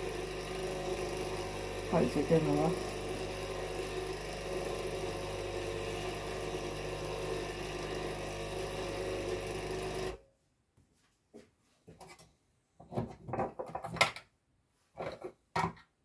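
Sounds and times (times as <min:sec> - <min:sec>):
coffee machine pump buzzing: 0:00.0 - 0:10.2.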